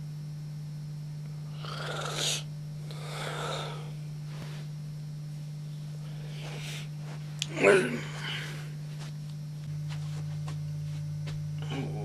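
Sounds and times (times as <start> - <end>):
low electrical hum: 0.0 - 12.0
man breathing heavily in sleep: 1.5 - 4.1, 6.0 - 7.0.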